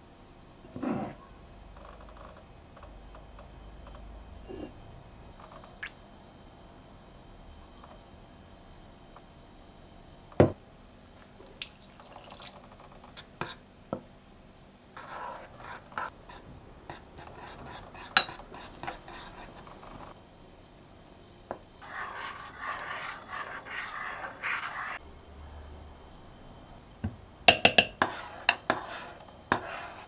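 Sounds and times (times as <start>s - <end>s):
batter stirring: 15.0s - 20.1s, 21.8s - 25.0s, 27.5s - 30.0s.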